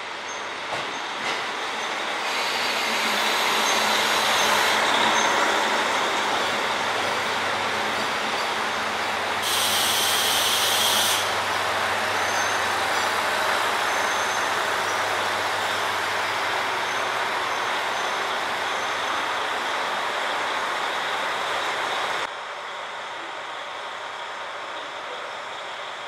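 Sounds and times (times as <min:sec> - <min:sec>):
diesel railcars idling: 0:02.1 - 0:26.0
compressed air hiss: 0:09.4 - 0:11.3.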